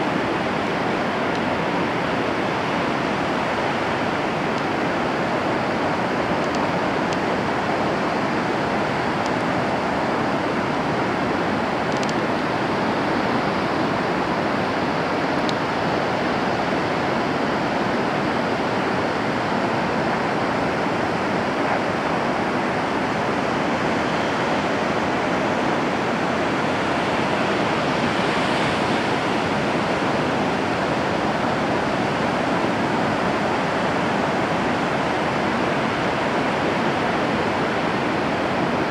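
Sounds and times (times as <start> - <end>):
ocean surf breaking: 0.0 - 38.9.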